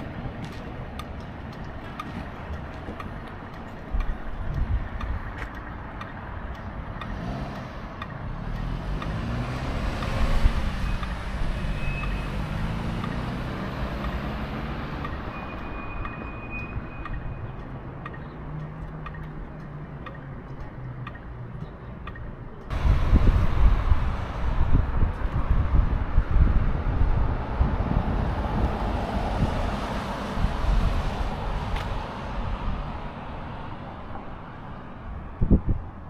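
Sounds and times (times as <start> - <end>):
vehicle driving past: 7.1 - 15.2.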